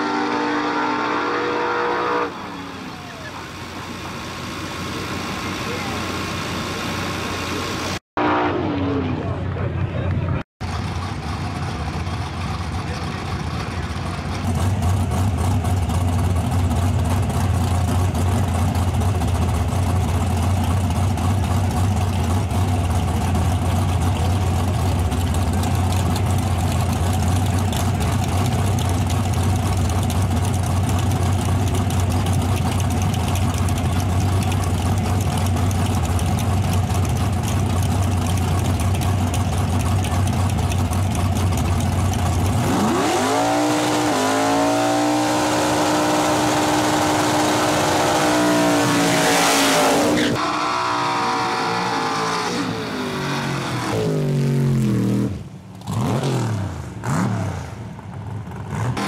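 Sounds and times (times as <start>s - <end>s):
truck engines idling loudly: 2.3s - 8.0s, 8.8s - 43.0s.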